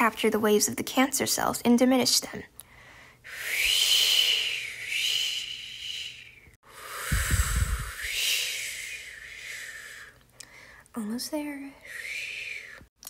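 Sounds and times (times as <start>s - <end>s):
person blowing breathy whoosh: 3.3s - 10.2s, 11.8s - 12.9s
air rumble on microphone: 6.9s - 9.1s.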